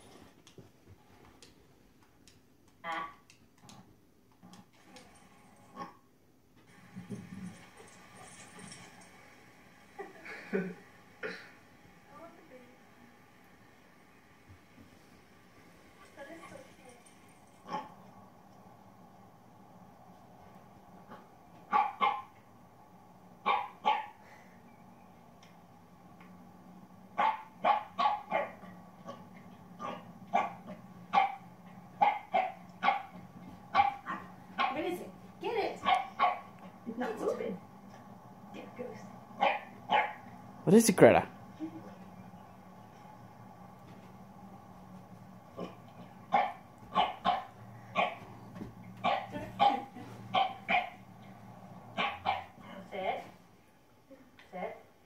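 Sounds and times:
dog barking: 17.6 - 18.0, 21.7 - 22.4, 23.4 - 24.2, 27.2 - 29.2, 29.8 - 34.8, 35.8 - 36.8, 39.4 - 40.3, 45.6 - 48.3, 49.0 - 51.1, 51.9 - 52.6
dog barking sharply: 21.7 - 22.3, 23.5 - 24.2, 35.8 - 36.6, 39.4 - 40.2, 46.3 - 48.2, 49.0 - 51.0, 52.0 - 52.5.

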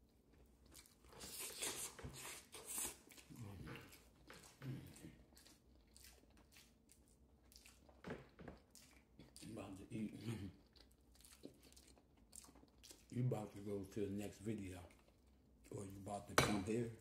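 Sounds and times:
person chewing with mouth clicks: 0.0 - 13.2.

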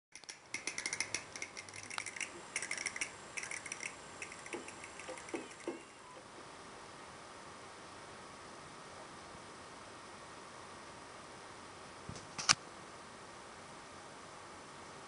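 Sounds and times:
sharp high clicks: 0.1 - 6.0
steady hiss: 0.2 - 10.0.

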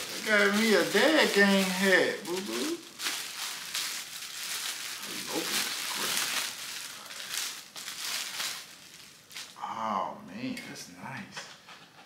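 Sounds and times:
gift wrap rustling and crinkling: 0.0 - 9.6.

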